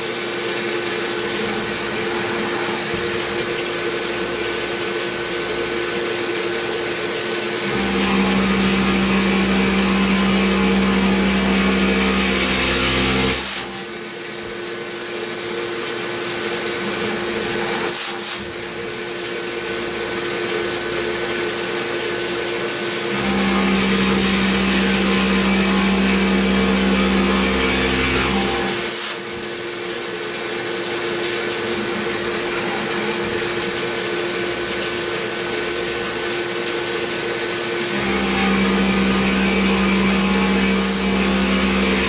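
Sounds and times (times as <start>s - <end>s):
milling machine cutting metal: 0.0s - 42.0s
coolant spray hiss: 13.4s - 23.1s.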